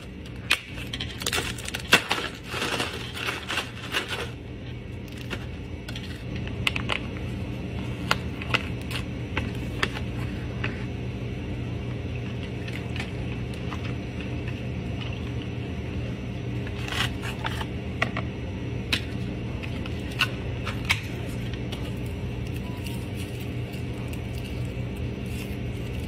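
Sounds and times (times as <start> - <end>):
ice clicking and cracking: 0.4 - 4.3, 21.8 - 26.0.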